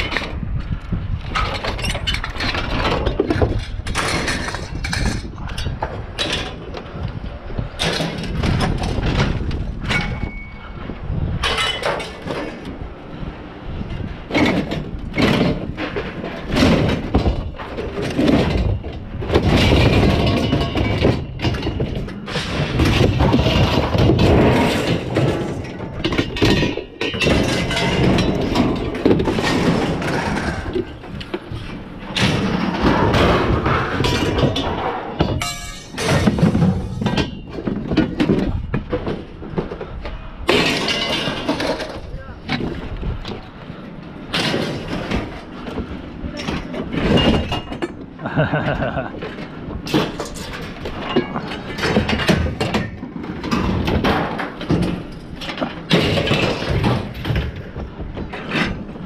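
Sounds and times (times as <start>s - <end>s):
scrap metal clattering: 13.9s - 59.0s.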